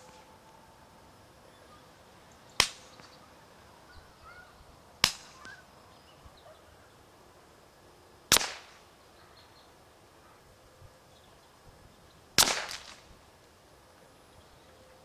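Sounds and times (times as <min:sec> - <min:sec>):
faint bird chirps: 0:01.4 - 0:04.8, 0:05.4 - 0:07.1, 0:08.9 - 0:12.3
suppressed rifle shots: 0:08.3 - 0:08.8, 0:12.4 - 0:13.0.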